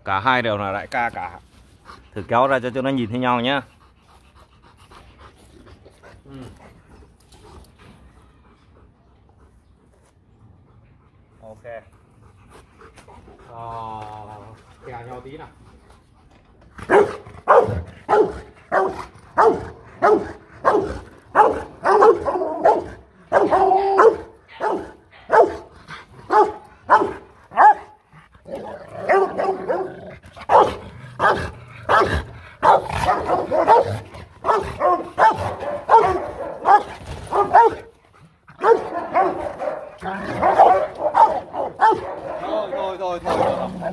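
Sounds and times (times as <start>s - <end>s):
dogs barking deeply: 16.8s - 43.9s.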